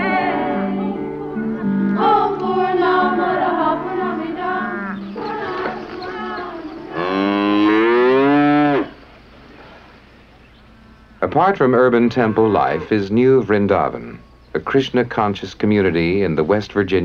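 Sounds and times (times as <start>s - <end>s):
cattle mooing: 4.6s - 5.2s, 6.2s - 9.0s, 11.9s - 13.0s.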